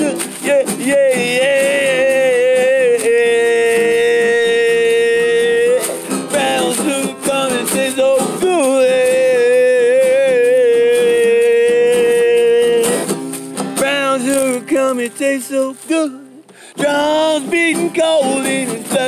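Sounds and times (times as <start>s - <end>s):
person singing long notes: 0.0s - 13.1s
strummed acoustic guitar: 0.0s - 19.0s.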